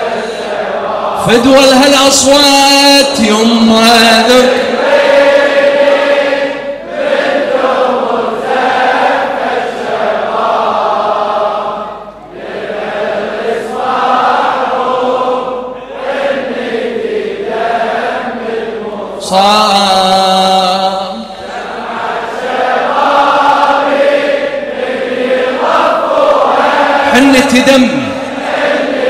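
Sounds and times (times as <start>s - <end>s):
men chanting in unison: 0.0s - 29.0s.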